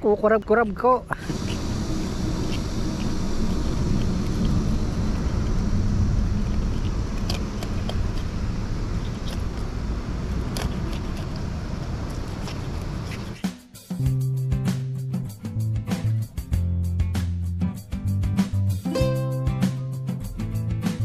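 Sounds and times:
steady low rumble: 1.2 - 13.2.

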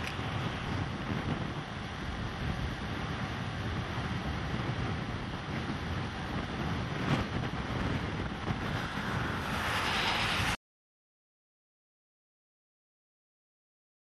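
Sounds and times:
wind buffeting microphone: 0.0 - 10.6.

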